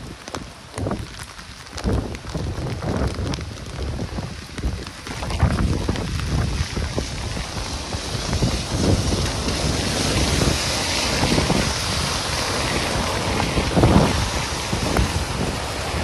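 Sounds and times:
hiss of wind-driven rain: 0.0 - 16.0
wind buffeting microphone: 0.0 - 16.0.

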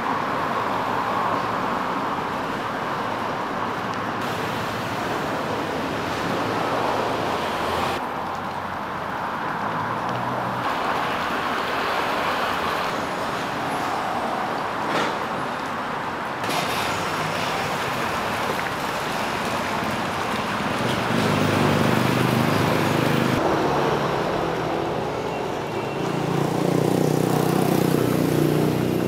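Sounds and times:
passing vehicles: 0.0 - 29.0
engine hum: 9.3 - 29.0.

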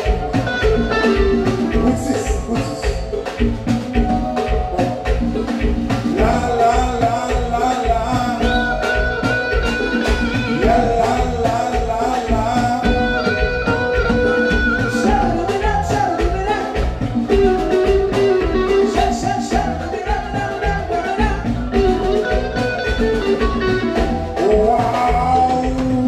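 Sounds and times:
drum and bass beat: 0.0 - 26.0
electric guitar: 0.0 - 26.0
singers holding long notes: 4.2 - 17.0.

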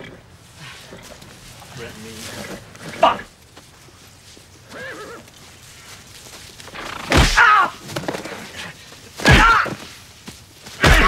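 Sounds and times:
faint groan: 7.0 - 9.9, 10.8 - 11.0
punches thudding on body: 7.1 - 7.6, 9.2 - 9.8, 10.8 - 11.0
pained grunt: 9.2 - 9.8, 10.8 - 11.0.

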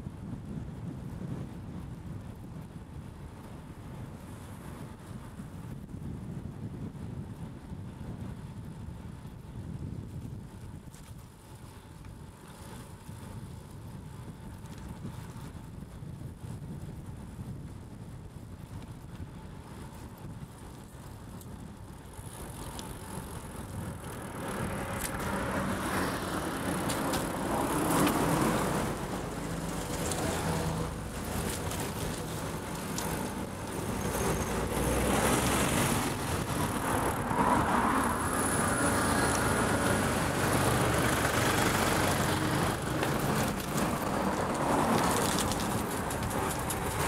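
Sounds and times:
tyre noise: 21.9 - 47.0
low engine hum: 22.0 - 47.0
motor vehicles passing: 22.1 - 47.0.

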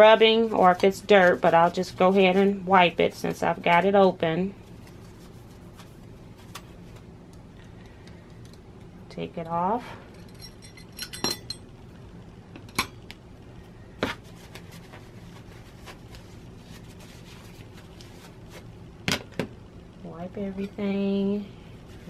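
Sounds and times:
small metal parts clinking: 10.2 - 11.6.

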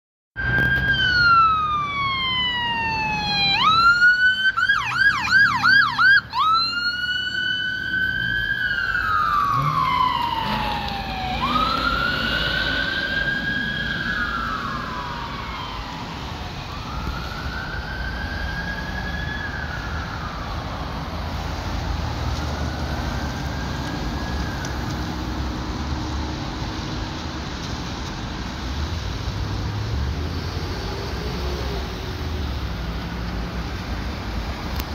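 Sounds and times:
police siren wailing and yelping: 0.4 - 21.3, 21.9 - 25.5
traffic noise: 0.4 - 34.9.

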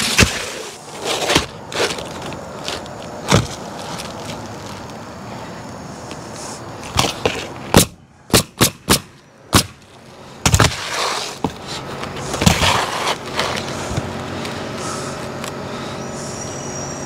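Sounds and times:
nail gun firing: 7.8 - 9.8.

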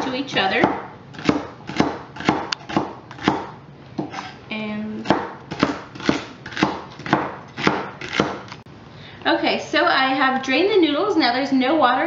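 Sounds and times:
knife chopping celery on board: 0.0 - 4.4, 5.0 - 8.5.

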